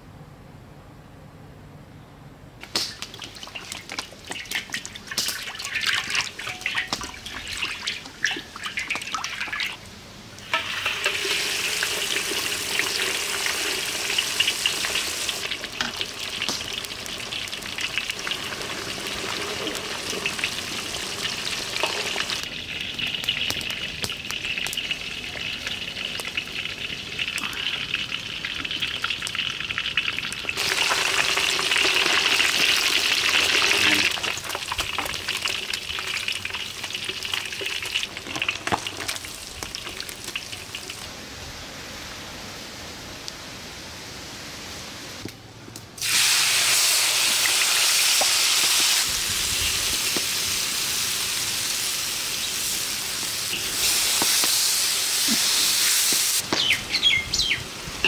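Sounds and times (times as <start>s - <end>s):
crackles and clicks: 2.6s - 9.2s, 14.1s - 41.1s, 47.5s - 50.5s, 53.1s - 56.9s
fish deep-frying in hot oil: 2.6s - 9.8s, 10.4s - 41.1s, 46.0s - 58.0s.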